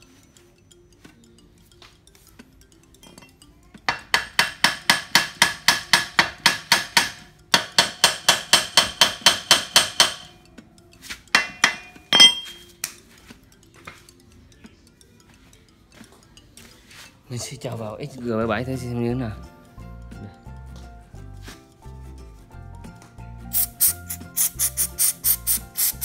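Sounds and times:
small hammer striking metal: 0:03.0 - 0:10.5, 0:11.3 - 0:13.0.

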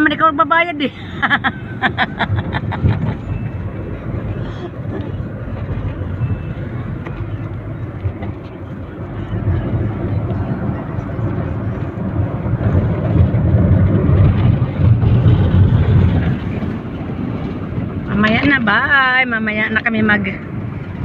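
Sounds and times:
road and engine rumble in cabin: 0:00.0 - 0:21.0.

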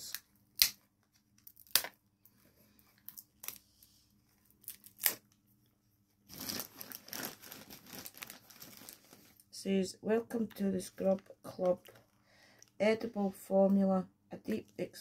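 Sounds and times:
packaging crinkling and tearing: 0:00.0 - 0:02.0, 0:04.3 - 0:05.4, 0:06.3 - 0:09.5.

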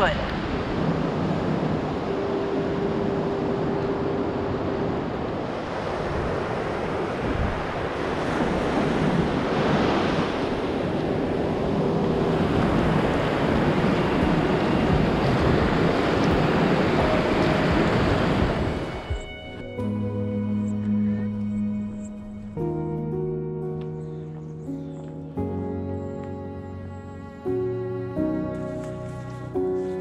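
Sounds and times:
surf breaking on sandy beach: 0:00.0 - 0:19.3.

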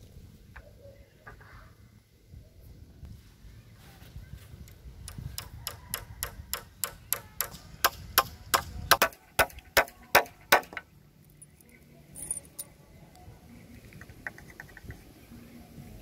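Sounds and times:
hammer striking a nail: 0:05.1 - 0:10.8.

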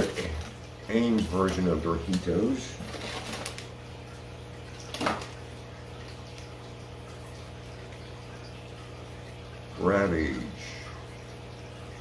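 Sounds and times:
aquarium filter hum and trickle: 0:00.0 - 0:12.0
foil snack packet crinkling: 0:02.8 - 0:03.8.

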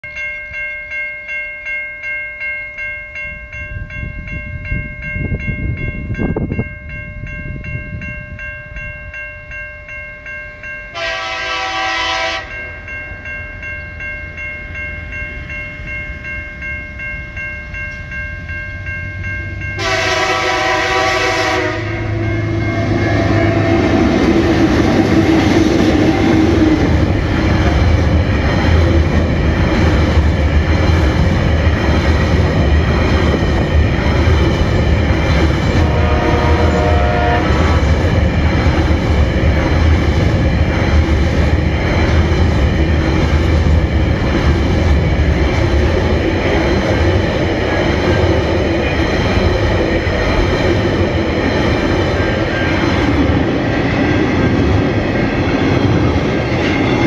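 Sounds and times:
level crossing bells ringing: 0:00.0 - 0:34.2
diesel locomotive horn: 0:10.9 - 0:12.6, 0:19.8 - 0:26.5, 0:35.8 - 0:37.8
train rumble: 0:10.9 - 0:57.0.

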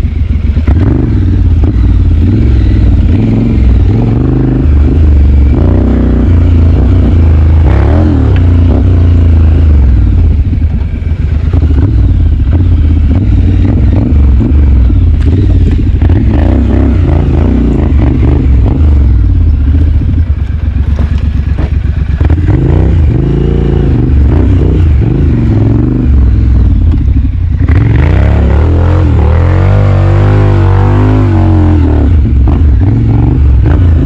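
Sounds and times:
motorcycle engine revving: 0:00.0 - 0:34.0
rattling and clatter: 0:19.7 - 0:22.4.

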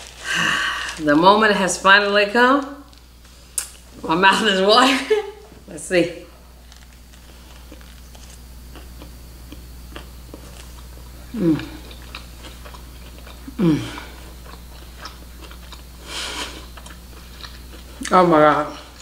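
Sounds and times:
person chewing food: 0:06.6 - 0:18.1.

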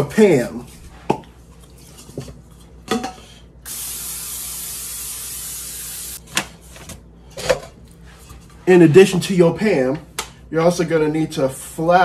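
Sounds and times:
aerosol spray can hissing: 0:03.7 - 0:06.2.

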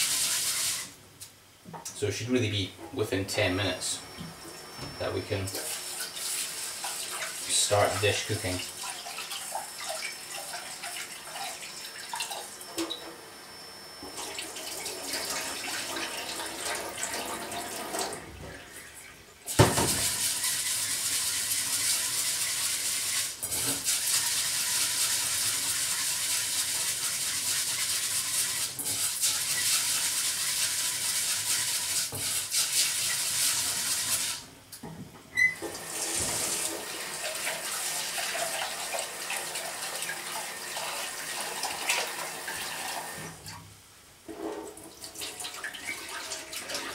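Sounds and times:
tap water running into a metal pot: 0:35.6 - 0:43.3.

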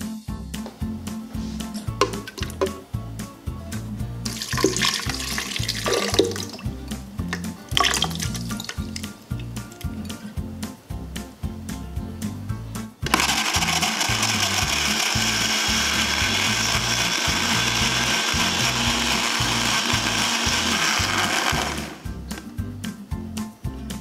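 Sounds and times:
blender motor running: 0:13.1 - 0:22.1.

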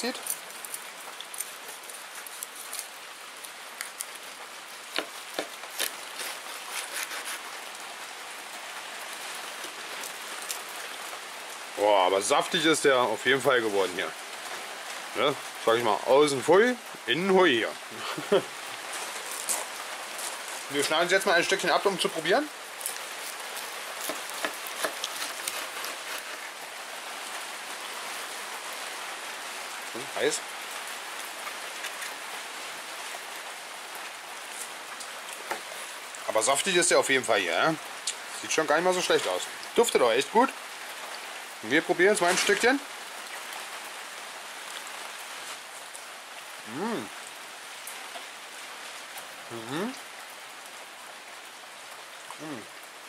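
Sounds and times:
rain falling: 0:00.0 - 0:53.0
knife crunching through crisp rind: 0:00.1 - 0:04.3, 0:04.9 - 0:07.7, 0:22.7 - 0:26.6.

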